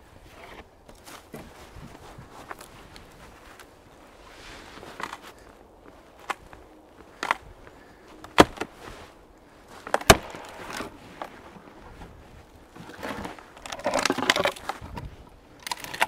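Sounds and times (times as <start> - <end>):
wood crunching in snow: 0.0 - 16.0
frozen branches snapping: 4.8 - 9.1, 9.7 - 11.7, 12.8 - 16.0.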